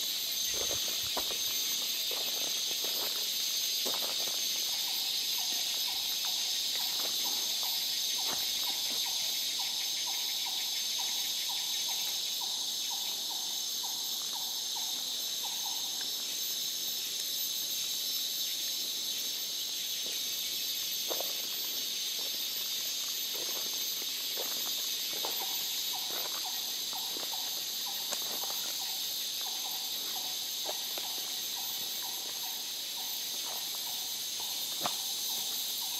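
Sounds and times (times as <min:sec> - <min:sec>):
insect chorus shrilling: 0:00.0 - 0:35.9
soft footfalls on trail: 0:00.1 - 0:09.2, 0:21.0 - 0:35.8.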